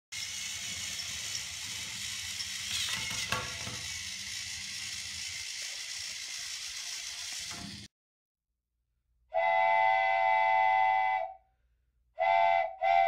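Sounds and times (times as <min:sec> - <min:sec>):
toy trains colliding clack: 0:00.1 - 0:07.9
toy trains whirring on plastic track: 0:00.1 - 0:07.9.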